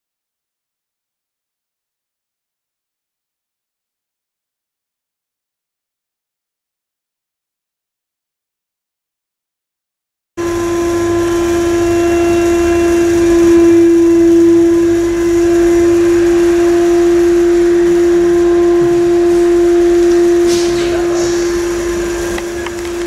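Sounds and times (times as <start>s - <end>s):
vacuum pump humming: 10.4s - 23.0s.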